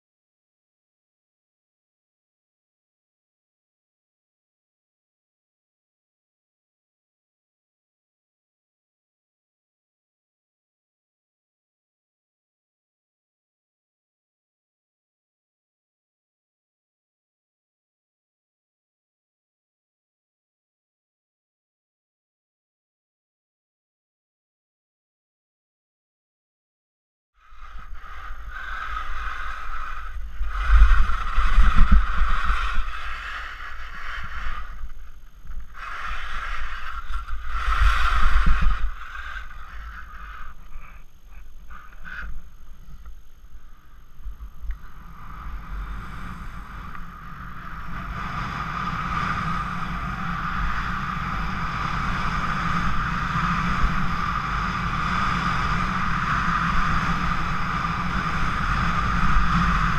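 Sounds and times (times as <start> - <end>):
wind rushing on microphone: 27.4 - 59.9
skis scraping over hard snow: 27.6 - 35.2, 35.8 - 40.6.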